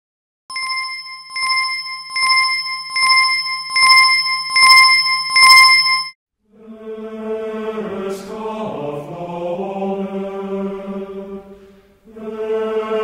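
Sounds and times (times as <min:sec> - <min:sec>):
small bell dinging: 0:00.5 - 0:06.2.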